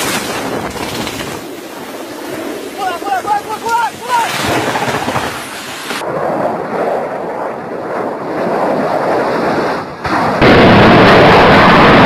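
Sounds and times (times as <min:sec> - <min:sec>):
low-flying aircraft rumble: 0:00.0 - 0:12.0.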